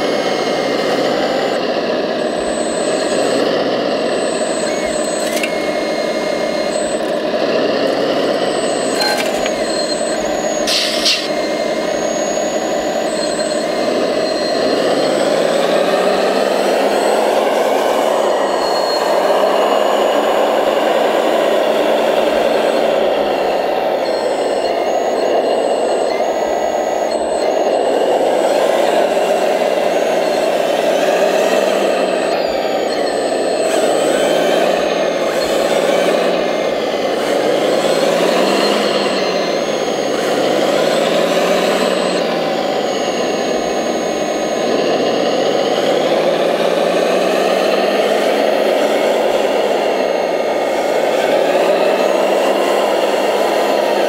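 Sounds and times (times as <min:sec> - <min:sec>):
electric motors and pump whirring: 0:00.0 - 0:54.0.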